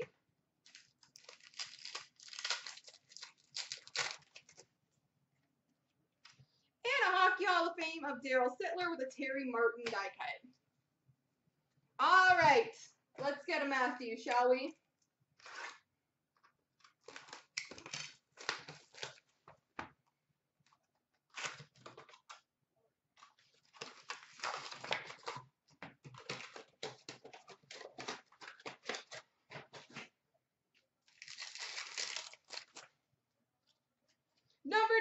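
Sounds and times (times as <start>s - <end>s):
packaging torn and crinkled: 0.6s - 4.7s, 16.8s - 19.3s, 23.2s - 25.5s, 31.0s - 33.0s.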